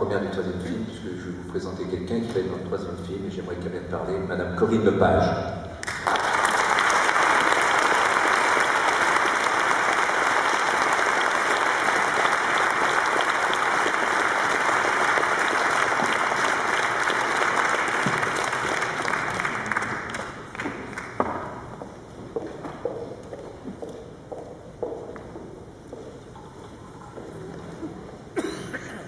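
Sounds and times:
audience applauding: 0:05.8 - 0:21.7.

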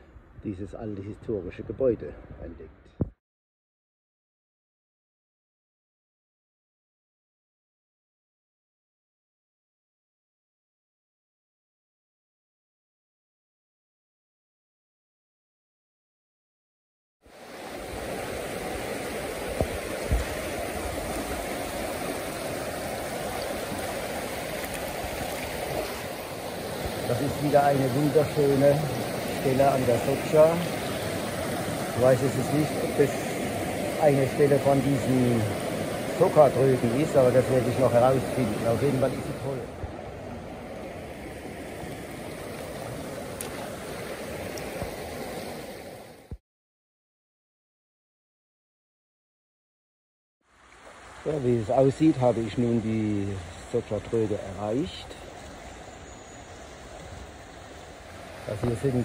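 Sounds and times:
river rushing over rocks: 0:17.4 - 0:46.2.

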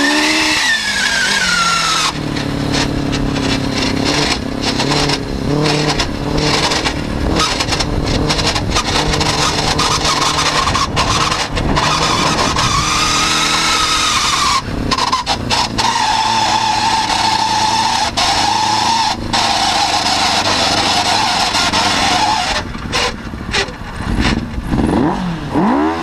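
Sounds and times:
buggy jolting over bumpy ground: 0:00.0 - 0:26.0
motorcycle engine revving: 0:00.0 - 0:26.0.

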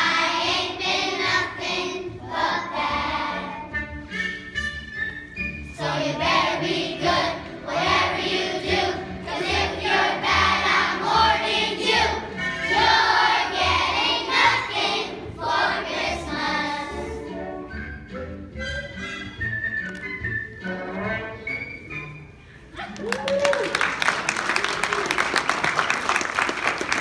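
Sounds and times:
children's choir singing: 0:00.0 - 0:03.9, 0:05.7 - 0:17.7.

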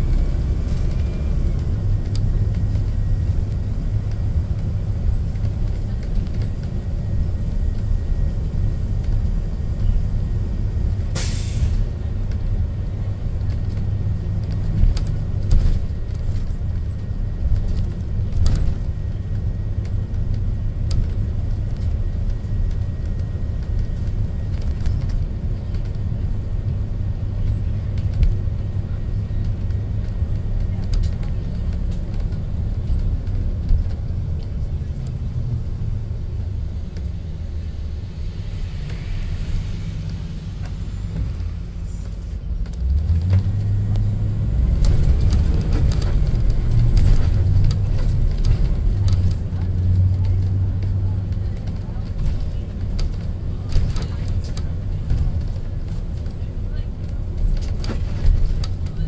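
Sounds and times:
bus engine rumble: 0:00.0 - 0:59.0
road noise: 0:00.0 - 0:59.0
short hiss: 0:11.2 - 0:11.8.

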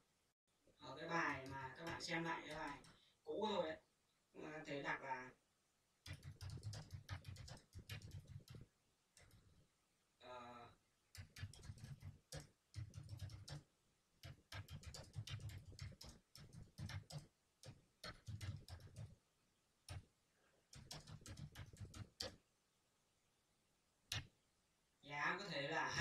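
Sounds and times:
faint keyboard typing: 0:01.1 - 0:03.2, 0:06.0 - 0:09.7, 0:11.1 - 0:19.2, 0:19.8 - 0:22.5, 0:24.1 - 0:24.4.

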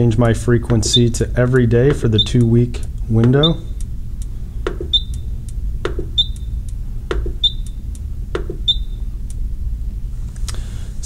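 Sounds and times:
steady low hum: 0:00.0 - 0:11.0
knob press click: 0:04.7 - 0:05.2, 0:05.8 - 0:06.5, 0:07.1 - 0:07.8.

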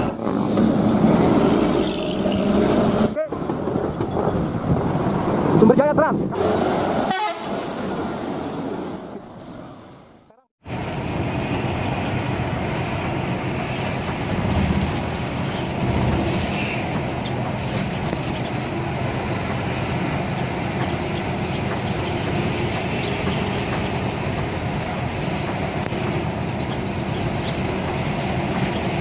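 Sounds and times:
bus engine and road rumble: 0:00.0 - 0:29.0.

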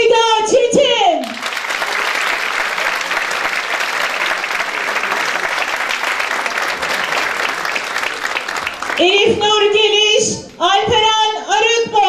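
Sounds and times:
audience applause: 0:01.2 - 0:09.8.

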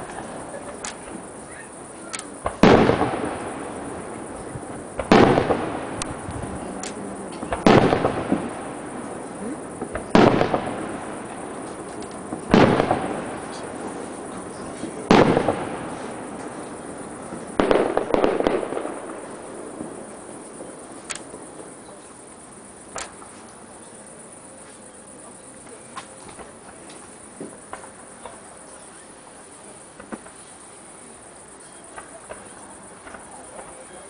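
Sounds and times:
rolling echo: 0:00.0 - 0:22.1
firework bangs: 0:00.0 - 0:23.8, 0:25.6 - 0:29.0, 0:29.6 - 0:34.0.

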